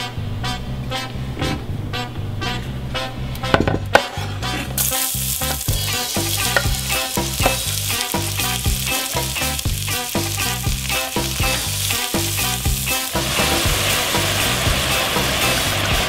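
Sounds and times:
background music with bass line: 0:00.0 - 0:16.0
onions sizzling in hot oil: 0:04.8 - 0:16.0.

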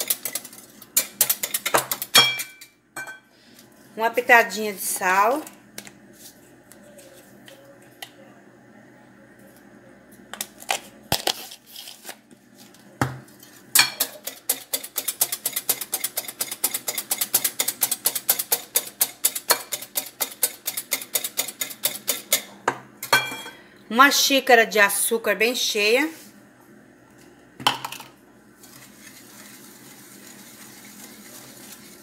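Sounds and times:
whisk clicking against glass bowl: 0:14.0 - 0:22.4.

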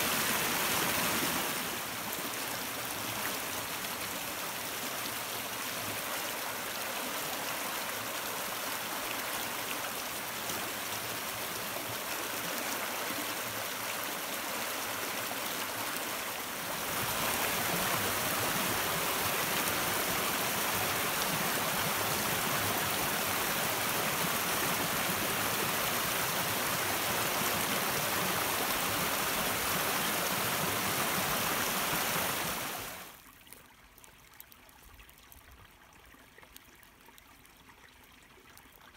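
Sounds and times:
stream babbling over stones: 0:00.0 - 0:38.9
water trickling through grass: 0:33.0 - 0:38.9.

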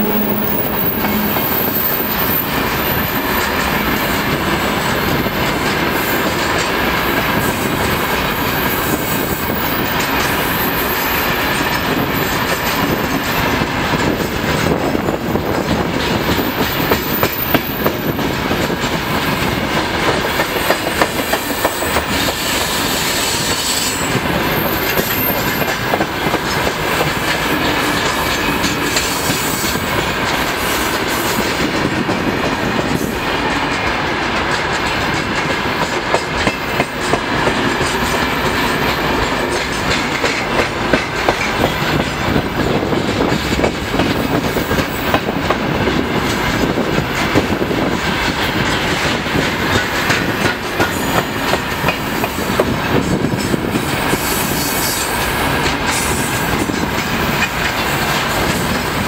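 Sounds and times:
high-pitched wheel squeals: 0:00.0 - 0:03.3
clickety-clack over rail joints: 0:00.0 - 0:59.0
train wheels rumbling: 0:00.0 - 0:59.0.

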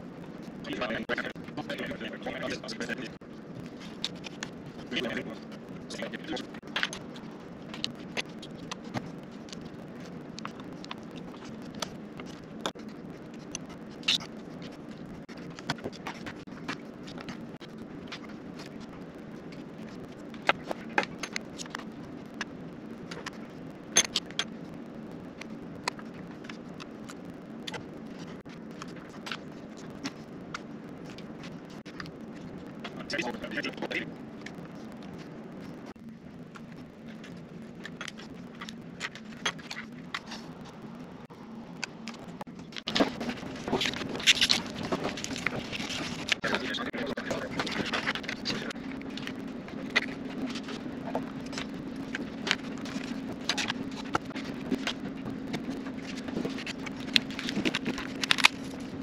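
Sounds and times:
steady low hum: 0:00.0 - 0:59.0
plastic card scraping and clicking: 0:47.3 - 0:58.9.

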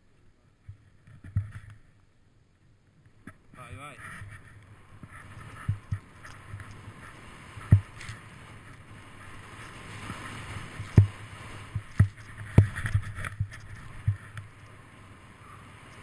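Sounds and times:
snow and wind rushing: 0:04.7 - 0:16.0.

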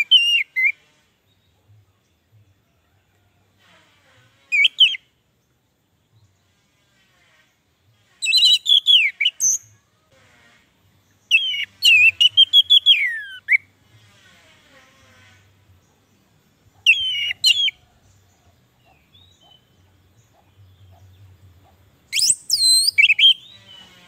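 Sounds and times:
thrush singing whistled notes: 0:00.0 - 0:01.5, 0:04.5 - 0:05.2, 0:08.0 - 0:09.7, 0:11.1 - 0:13.8, 0:16.8 - 0:18.2, 0:22.0 - 0:24.0.

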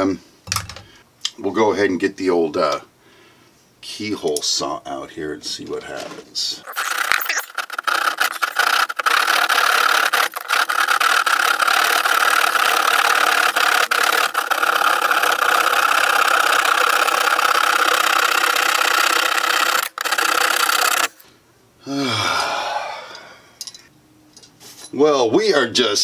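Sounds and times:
hand saw rasping: 0:06.7 - 0:21.2.

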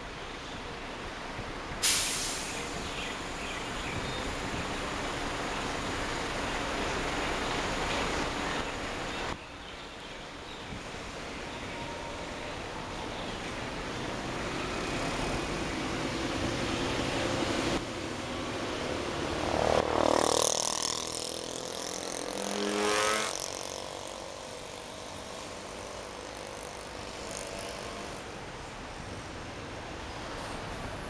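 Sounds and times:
road traffic rush: 0:00.0 - 0:31.0
vehicle passing close: 0:14.4 - 0:28.2.

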